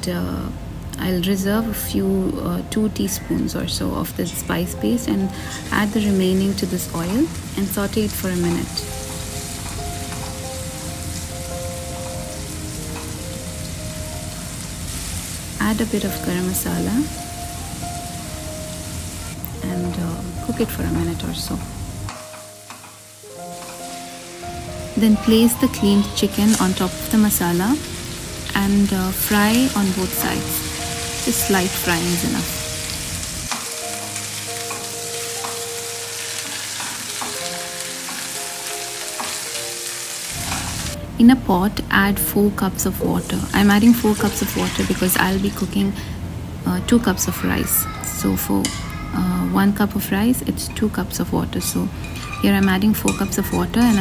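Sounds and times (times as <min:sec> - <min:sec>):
soft background music: 0:00.0 - 0:54.0
paste sizzling in oil: 0:22.3 - 0:41.0, 0:43.0 - 0:46.0.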